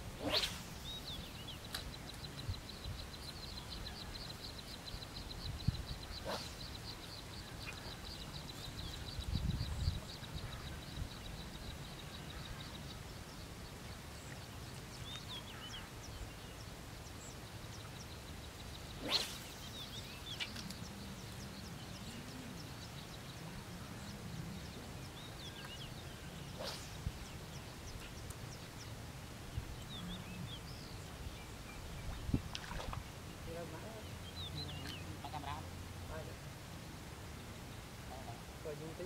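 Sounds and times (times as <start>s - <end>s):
fishing pole swishing: 0.1s - 1.0s, 6.2s - 6.8s, 19.0s - 19.7s, 26.5s - 27.3s
faint high bird chirps: 0.2s - 29.0s.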